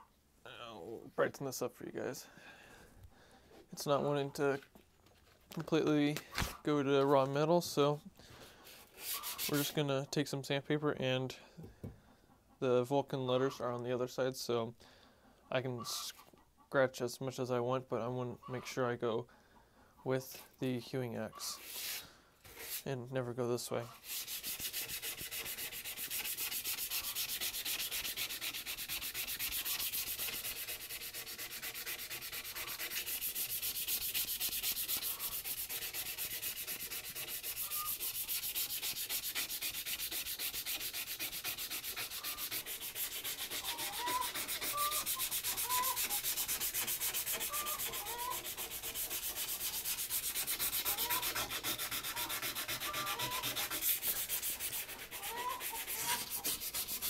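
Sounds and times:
sandpaper rubbing on steel: 8.6 - 9.8, 21.5 - 23.0, 23.9 - 57.0.

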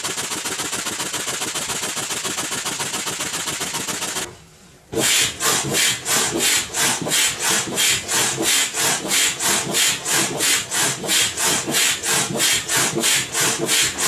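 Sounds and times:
foot pump hissing air: 5.0 - 14.0.

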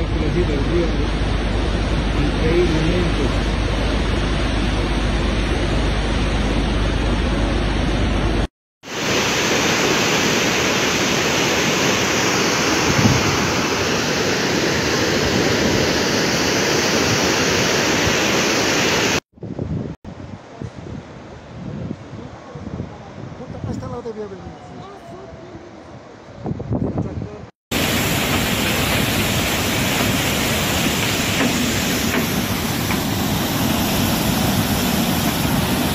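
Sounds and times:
floodwater rushing: 0.0 - 19.2, 27.7 - 35.9
wind on microphone: 12.8 - 13.6, 19.4 - 27.5.

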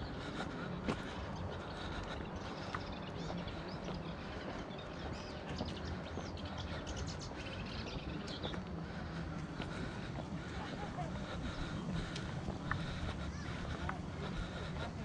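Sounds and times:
birds chirping: 0.0 - 15.0
footsteps on rocky ground: 0.0 - 15.0
steady low rumble: 0.0 - 15.0.

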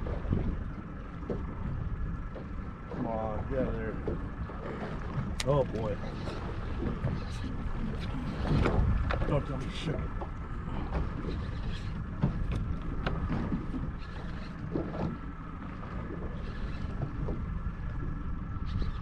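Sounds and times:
boat low rumble: 0.0 - 19.0.

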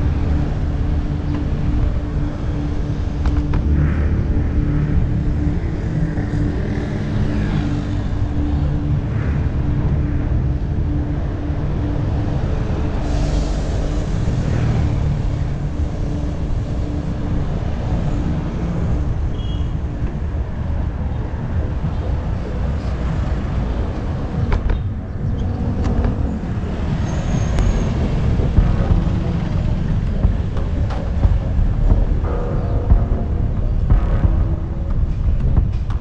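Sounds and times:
road traffic passing: 0.0 - 36.0
steady low rumble: 0.0 - 36.0
bus air brake hiss: 13.0 - 14.4.

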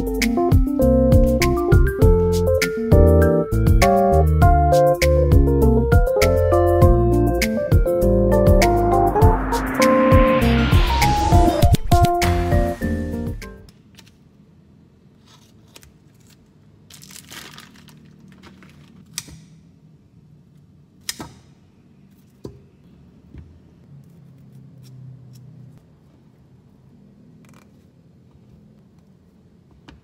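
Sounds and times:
rustling and crinkling: 15.2 - 19.1.

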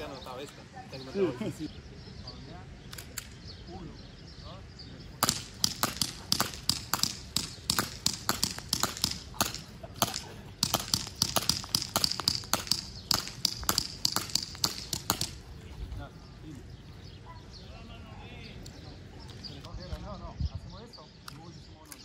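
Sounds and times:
airsoft guns firing: 5.2 - 15.4.

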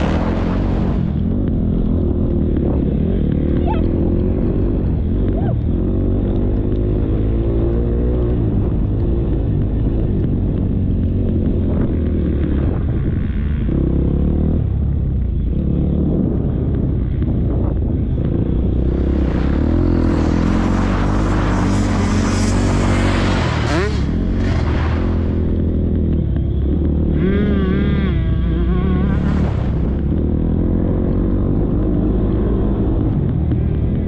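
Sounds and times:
dirt bike engine revving: 0.0 - 10.6, 18.2 - 34.0
rushing noise: 18.9 - 25.7.

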